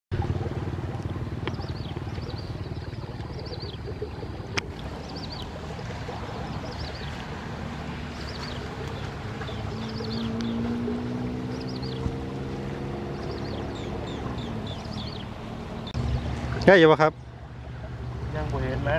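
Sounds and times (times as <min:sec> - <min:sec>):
bird chirping: 0:01.4 - 0:04.3, 0:04.9 - 0:05.5, 0:06.4 - 0:07.2, 0:08.0 - 0:12.3, 0:12.9 - 0:16.0.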